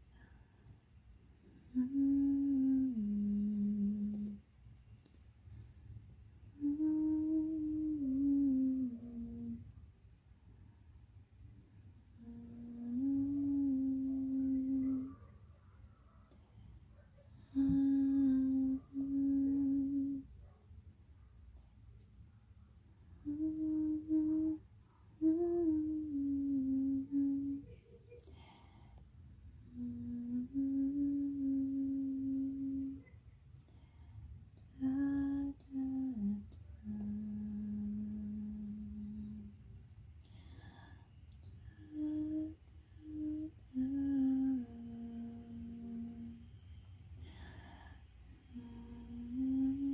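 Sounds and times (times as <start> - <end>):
person humming: 1.6 - 4.4, 6.6 - 9.7, 12.2 - 15.2, 17.4 - 20.3, 23.2 - 28.6, 29.6 - 33.1, 34.6 - 39.6, 41.6 - 46.4, 48.4 - 49.9.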